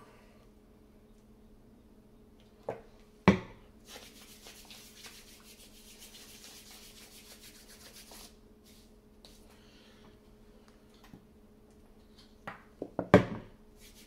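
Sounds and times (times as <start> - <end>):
hands rubbing together: 3.8 - 9.5, 13.8 - 14.0.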